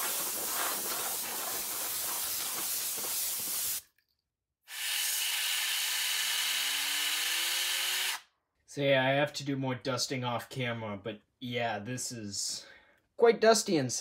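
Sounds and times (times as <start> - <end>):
compressed air spraying: 0.0 - 3.8.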